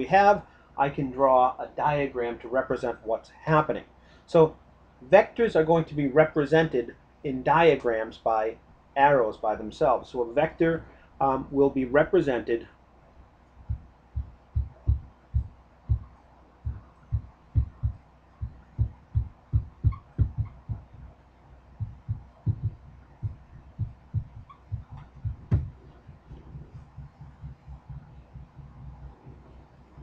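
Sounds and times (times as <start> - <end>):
marker thumping on whiteboard: 19.6 - 20.9, 24.4 - 25.9.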